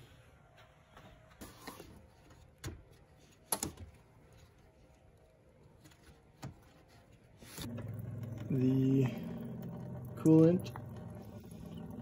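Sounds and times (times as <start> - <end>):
faint handling sounds: 0.0 - 7.7.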